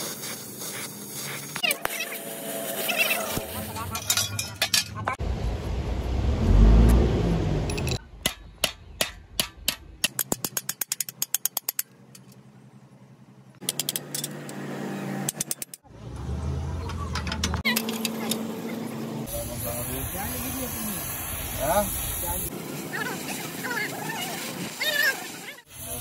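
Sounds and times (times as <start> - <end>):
low rumbling: 5.1 - 8.3
hammer tapping sheet metal: 8.2 - 11.8.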